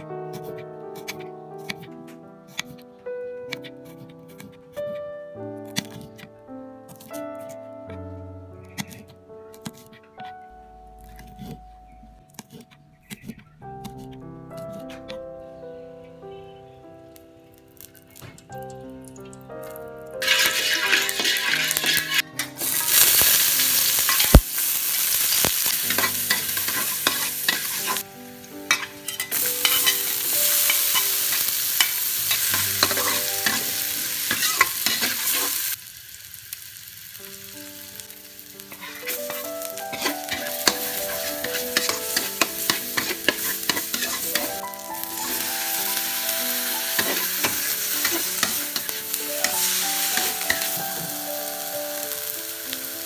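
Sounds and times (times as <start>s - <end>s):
hot oil sizzling in a wok: 17.8s - 53.0s
spatula scraping and clacking: 20.2s - 22.6s, 25.9s - 28.0s, 28.7s - 30.1s, 30.7s - 33.7s, 34.3s - 35.6s, 38.7s - 44.6s.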